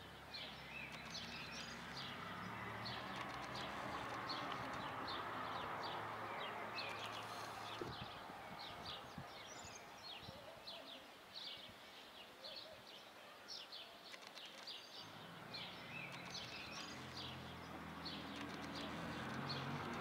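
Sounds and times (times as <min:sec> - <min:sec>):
small birds chirping: 0:00.0 - 0:20.0
low engine hum: 0:00.2 - 0:09.3, 0:15.0 - 0:20.0.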